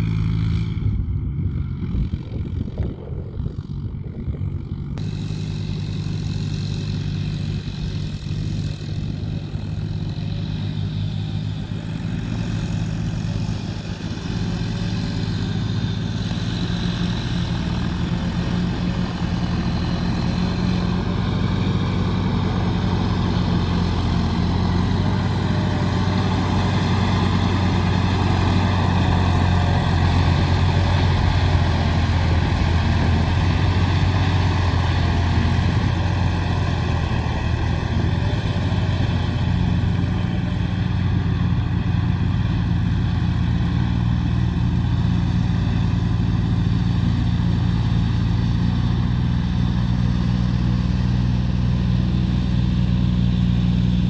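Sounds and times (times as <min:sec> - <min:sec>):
tractor diesel engine running: 0:00.0 - 0:54.0.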